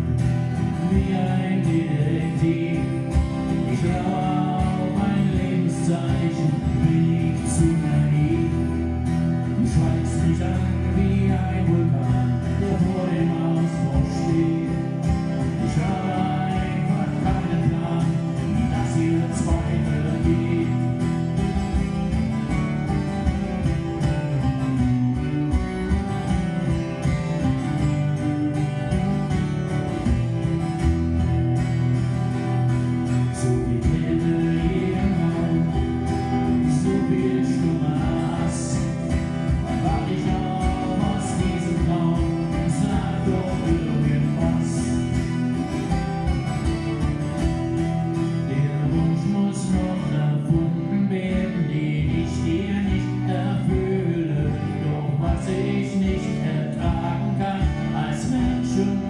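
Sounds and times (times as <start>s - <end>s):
man singing: 0.0s - 23.4s, 33.0s - 46.9s, 48.1s - 59.0s
acoustic guitars playing: 0.0s - 59.0s.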